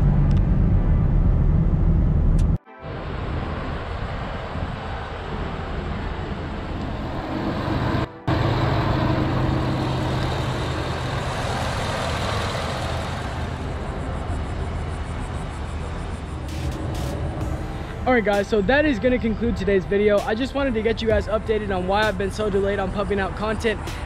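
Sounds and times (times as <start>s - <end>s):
truck engine idling: 5.2s - 18.9s.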